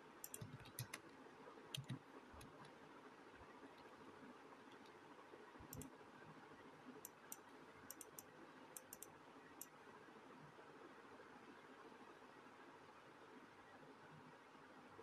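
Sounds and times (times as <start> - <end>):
faint sharp clicks: 0.2 - 2.8, 5.7 - 5.9, 7.0 - 9.8.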